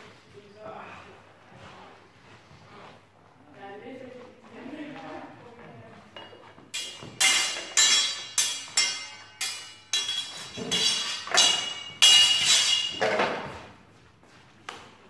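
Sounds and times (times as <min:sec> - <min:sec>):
steel swords clashing: 0:06.8 - 0:13.5.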